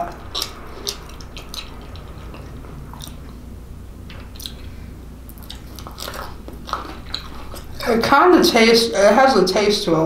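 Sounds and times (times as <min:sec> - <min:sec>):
person chewing bread: 0:00.0 - 0:08.0.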